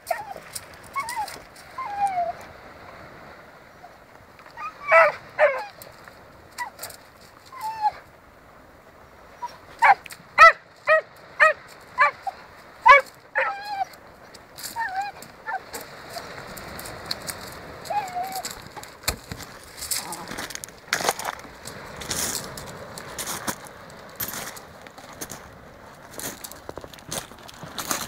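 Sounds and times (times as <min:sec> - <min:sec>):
dog whining: 0:00.0 - 0:02.4, 0:04.6 - 0:05.8, 0:07.5 - 0:08.0, 0:11.4 - 0:13.9, 0:14.7 - 0:15.8, 0:17.9 - 0:18.6
dog barking: 0:04.8 - 0:05.6, 0:09.8 - 0:12.2.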